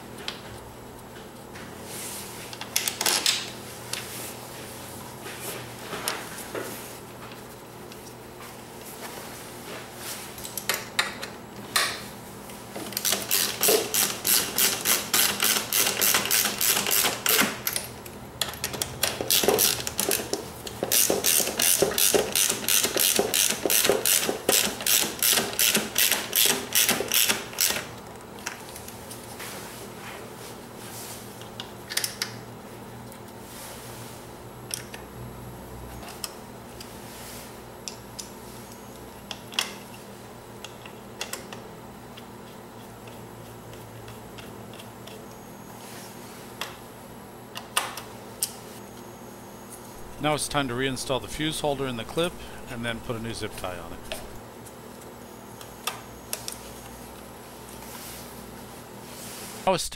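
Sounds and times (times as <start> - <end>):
hand ratchet clicking: 13.0 - 17.5.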